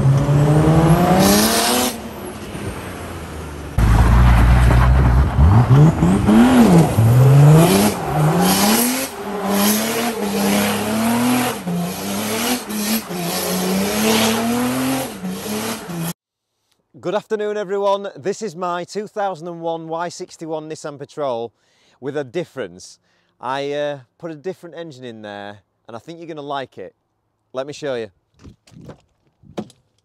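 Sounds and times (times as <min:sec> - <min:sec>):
diesel engine revving hard: 0:00.0 - 0:16.2
spinning tyres squealing: 0:03.8 - 0:16.1.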